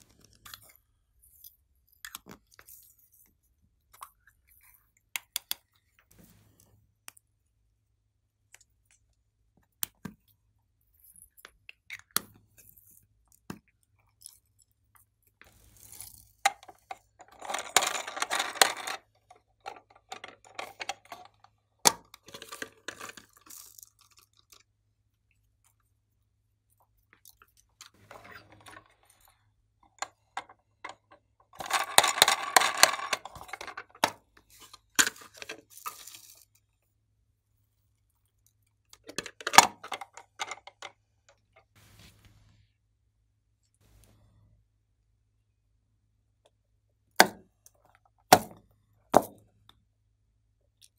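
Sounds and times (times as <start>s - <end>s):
small plastic pieces rattling: 15.6s - 21.4s, 30.0s - 36.4s.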